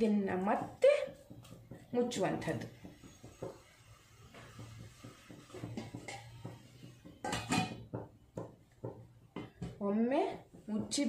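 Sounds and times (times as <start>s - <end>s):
metal lid clattering on pan: 7.2s - 7.8s.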